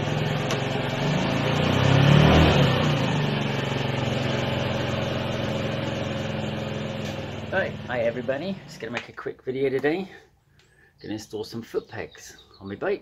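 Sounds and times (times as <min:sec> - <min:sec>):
scooter engine revving and idling: 0:00.0 - 0:09.0.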